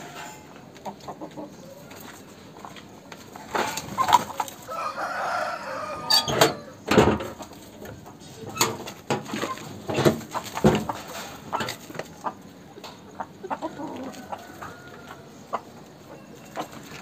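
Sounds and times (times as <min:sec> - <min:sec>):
rooster crowing: 0:04.6 - 0:06.9, 0:13.8 - 0:15.4.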